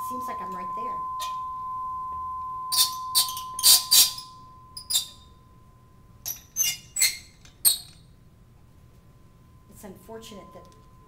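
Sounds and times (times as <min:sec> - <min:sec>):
tuning fork pure tone: 0:00.0 - 0:06.6, 0:08.4 - 0:11.0
apparatus squeaking sharply: 0:02.7 - 0:05.3, 0:06.3 - 0:08.0.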